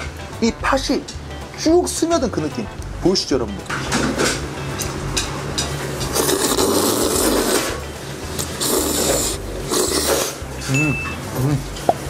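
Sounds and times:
person slurping noodles: 6.0 - 10.8.

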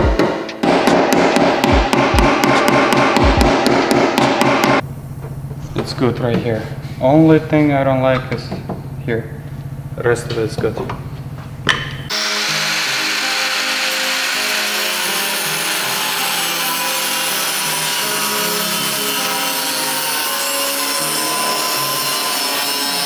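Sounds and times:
background music: 0.0 - 4.8, 12.1 - 23.0
angle grinder cutting steel: 12.1 - 23.0.

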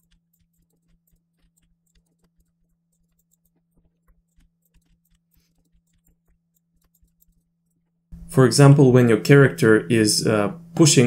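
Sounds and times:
mouse and keyboard clicks: 0.0 - 7.9
low hum: 0.0 - 11.0.

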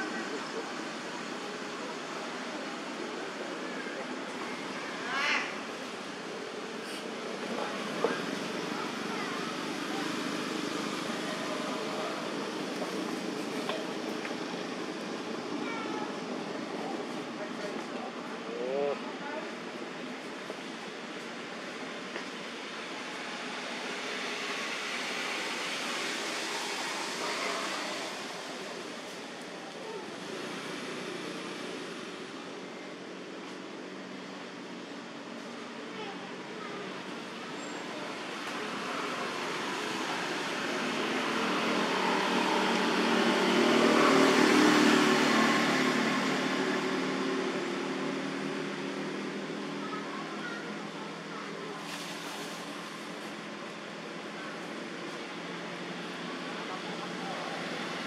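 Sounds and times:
vehicle passing by: 38.7 - 49.9.

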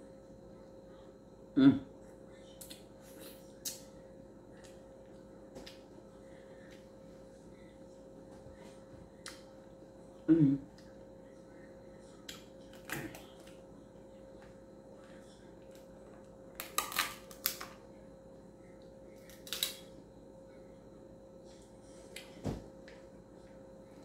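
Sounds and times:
person humming: 1.6 - 1.9, 10.2 - 10.8
crab shells cracking: 16.6 - 17.8, 19.3 - 19.8.

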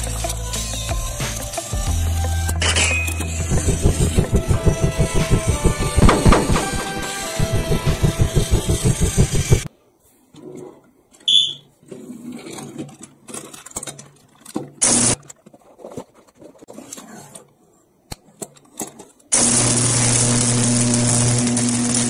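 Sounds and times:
toy train motor running: 3.3 - 9.7
high electronic beep: 11.3 - 11.6.

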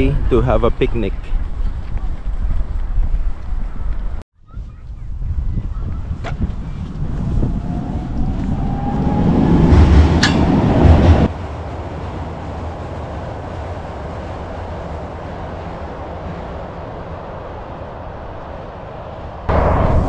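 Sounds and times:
wind buffeting microphone: 0.0 - 20.0
train crossing steel bridge: 7.6 - 20.0.

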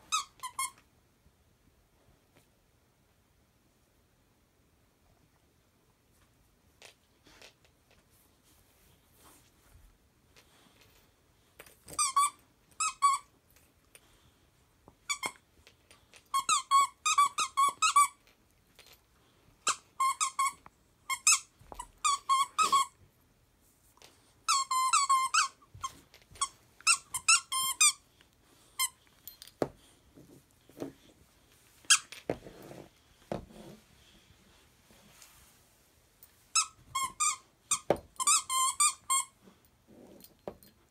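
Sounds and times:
squeaky toy squeaks: 0.0 - 0.8, 11.9 - 13.3, 15.0 - 15.4, 16.3 - 18.2, 19.6 - 23.0, 24.5 - 28.0, 31.9 - 32.1, 36.5 - 39.4.

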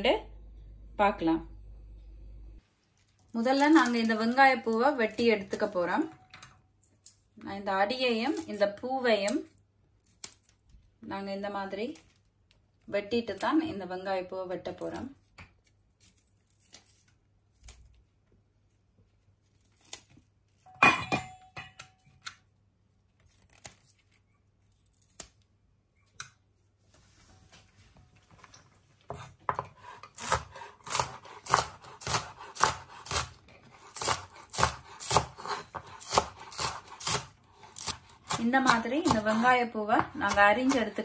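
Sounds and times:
knife chopping on wooden board: 29.1 - 41.0
knife snipping onion ends: 29.2 - 41.0.

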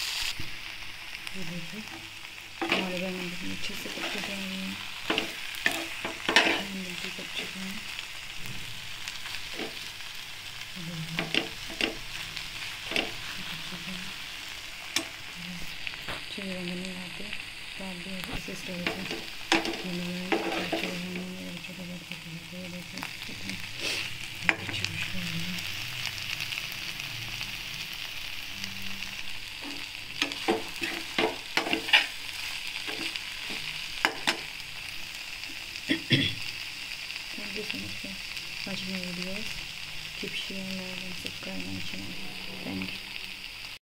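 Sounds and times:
low sizzle: 0.0 - 43.8
spoon scraping metal pan: 5.0 - 6.8, 18.8 - 21.2, 29.6 - 34.5.

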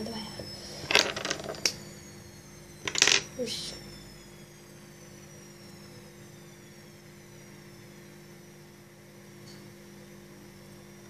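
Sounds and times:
faint falling high tones: 0.0 - 8.4
low background hum: 0.0 - 11.0.

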